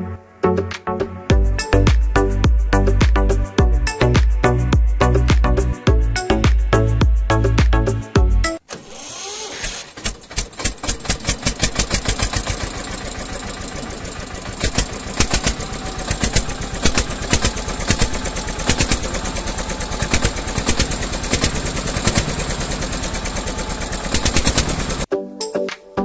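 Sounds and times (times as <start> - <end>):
small engine chugging: 8.8 - 25.1.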